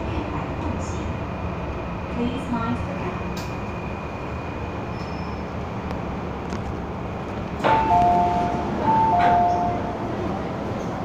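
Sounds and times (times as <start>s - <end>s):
train wheels rumbling on rail: 0.0s - 11.0s
click: 3.4s - 3.6s.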